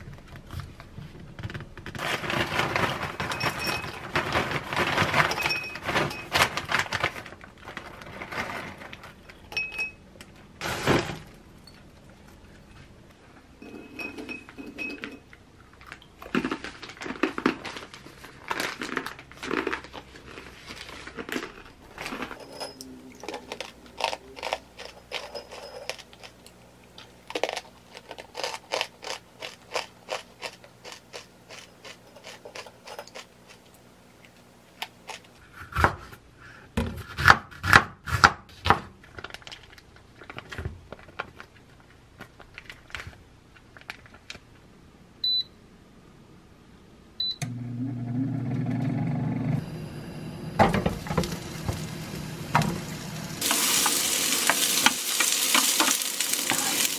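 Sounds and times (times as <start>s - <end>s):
crisp chewing crunches: 15.6s - 22.4s, 23.1s - 33.8s
chips rattling into glass bowl: 21.0s - 26.4s.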